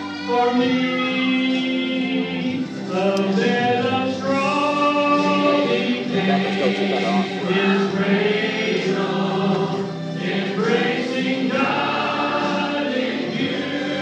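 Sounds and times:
church choir singing: 0.0s - 14.0s
held instrumental accompaniment: 0.0s - 14.0s
male solo voice singing: 0.3s - 8.0s.

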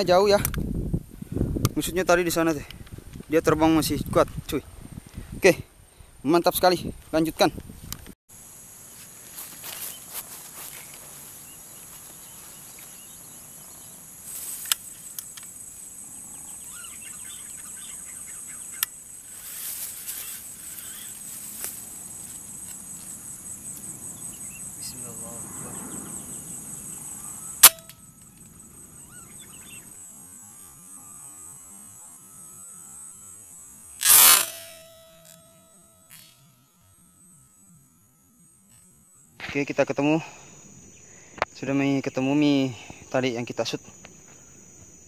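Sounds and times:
high insect chorus: 0.0s - 45.0s
air rifle shot: 27.6s - 27.9s.

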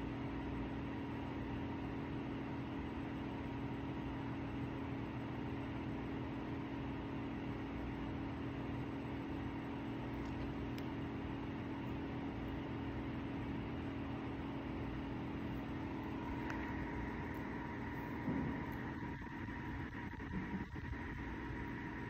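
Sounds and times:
low mechanical drone: 9.9s - 22.0s.

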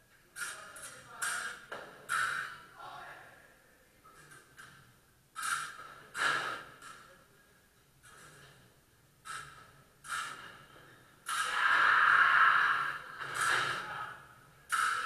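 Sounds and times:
long noisy sound: 11.3s - 15.0s.

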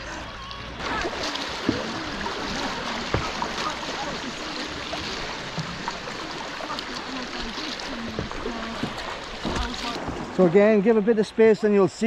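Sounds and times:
river water rushing: 0.0s - 12.0s
sharp knocks on kayak: 3.1s - 3.7s, 8.1s - 10.4s.

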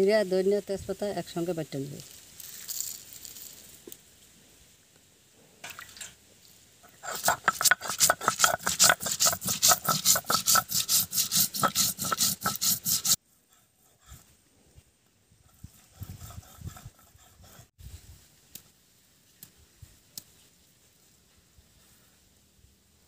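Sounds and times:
stone grinding spices: 6.9s - 13.2s.

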